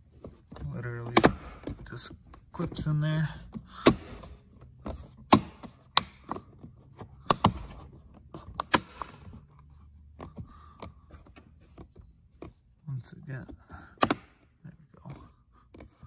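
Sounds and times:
plastic clips snapping into place: 8.6s - 9.2s, 14.0s - 14.4s.

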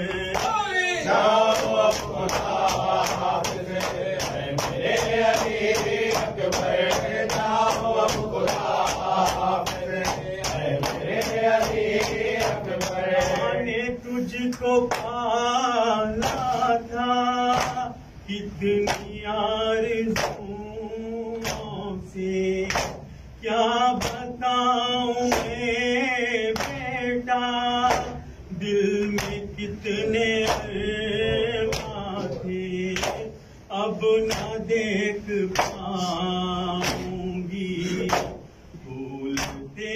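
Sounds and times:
man reciting a lament: 0.0s - 39.9s
men chanting: 0.0s - 39.9s
hands slapping chests: 1.5s - 13.5s, 36.8s - 37.2s, 38.0s - 38.4s, 39.3s - 39.6s.

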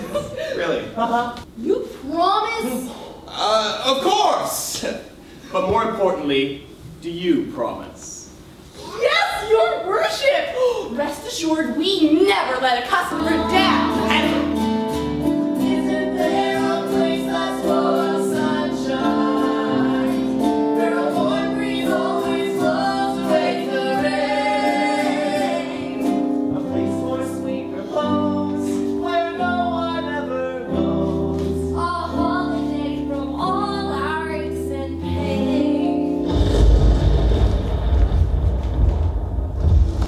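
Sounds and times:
voices singing together: 13.1s - 36.2s
instrumental accompaniment: 13.1s - 39.8s.

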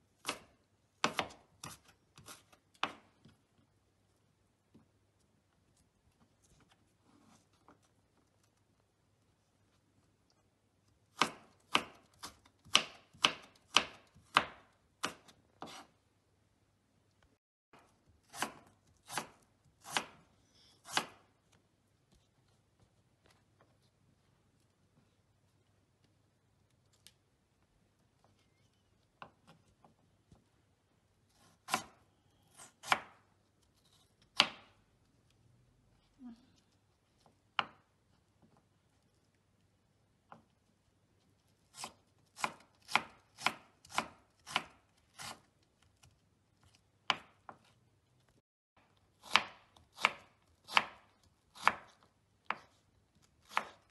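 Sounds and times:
knife chopping on wooden board: 0.2s - 3.3s, 11.1s - 15.9s, 17.8s - 21.2s, 31.4s - 33.2s, 34.3s - 34.8s, 41.7s - 45.5s, 47.0s - 47.7s, 49.2s - 52.8s, 53.4s - 53.9s.

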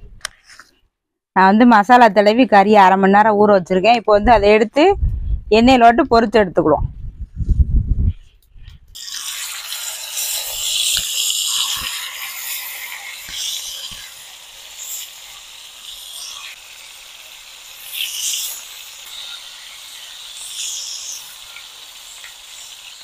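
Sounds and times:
chicken sizzling in hot oil: 9.0s - 23.0s.

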